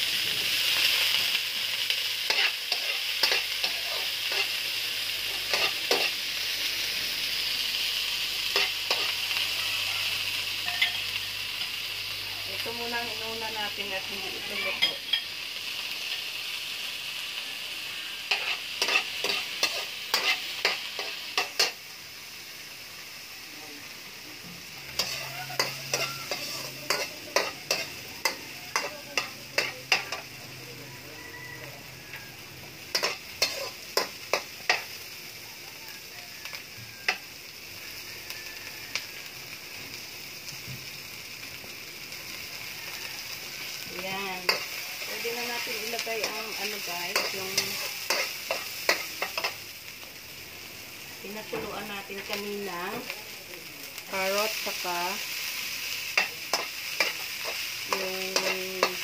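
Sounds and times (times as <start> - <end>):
vegetables sizzling in oil: 0.0 - 59.0
metal spatula scraping pan: 18.3 - 21.8, 24.9 - 30.3.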